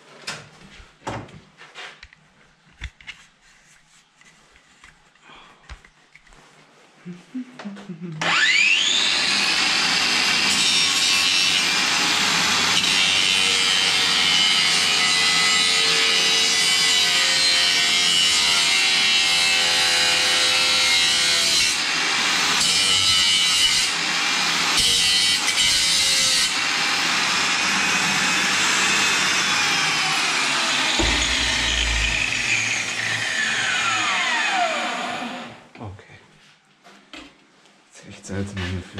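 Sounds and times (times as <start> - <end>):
angle grinder cutting metal pipe: 8.2 - 35.5.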